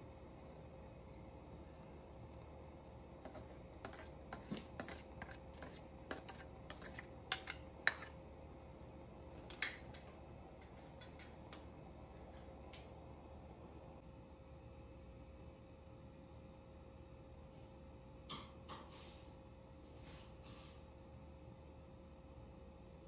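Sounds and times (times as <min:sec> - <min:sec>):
faint steady hum: 0:00.0 - 0:23.0
plastic spoon scraping pan: 0:03.2 - 0:08.2.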